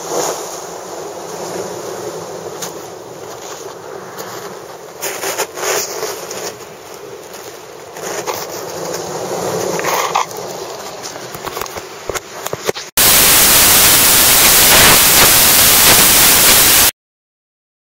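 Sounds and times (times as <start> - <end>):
wind: 0.0 - 13.5
surf: 0.0 - 16.9
static hiss: 9.4 - 16.9.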